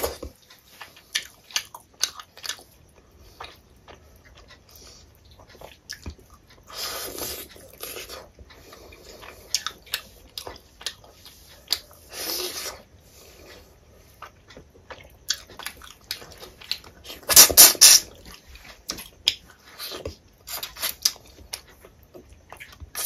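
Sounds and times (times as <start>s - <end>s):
chewing with wet mouth clicks: 0.0s - 23.0s
mouth sucking sounds: 17.3s - 18.1s.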